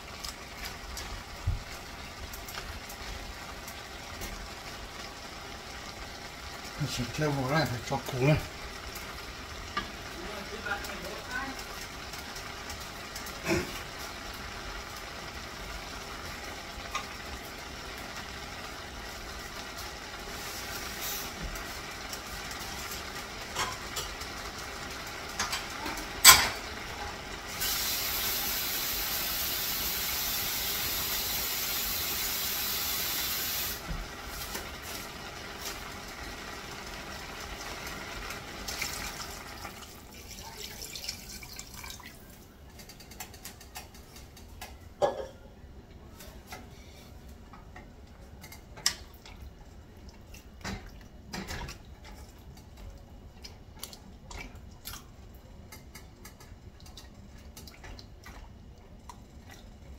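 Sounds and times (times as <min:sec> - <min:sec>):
meat frying: 0:00.0 - 0:44.8
water poured into a pot: 0:27.4 - 0:42.6.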